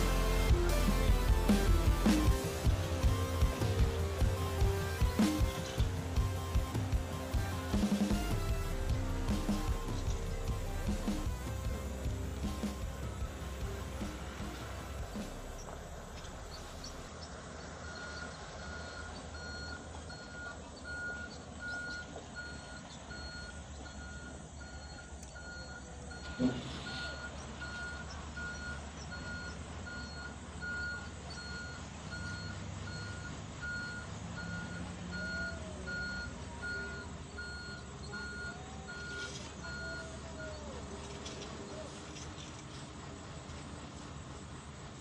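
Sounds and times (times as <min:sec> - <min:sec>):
diesel engines rumbling: 0:00.0 - 0:45.0
reversing alarm beeping: 0:17.8 - 0:42.0.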